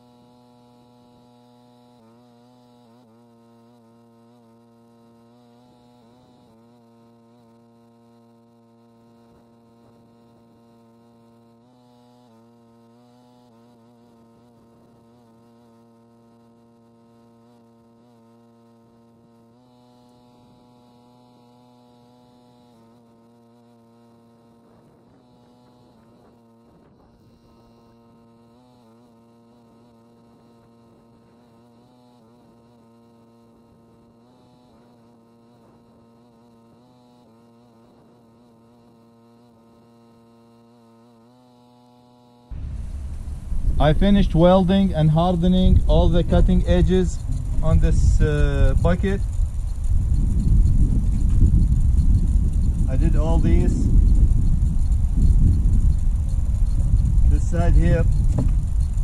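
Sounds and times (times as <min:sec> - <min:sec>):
faint steady hum of sustained tones: 0:42.5 - 0:59.0.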